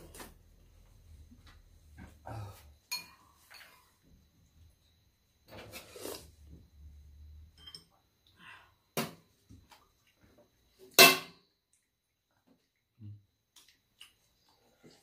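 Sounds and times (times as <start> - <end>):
spoons and chopsticks clinking on bowls: 2.9 - 3.8.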